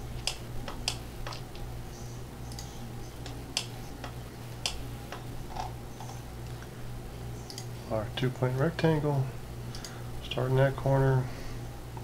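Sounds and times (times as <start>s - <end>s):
steady low hum: 0.0s - 12.0s
computer mouse clicking: 0.2s - 1.7s, 2.4s - 6.7s, 7.4s - 7.7s, 9.7s - 10.0s.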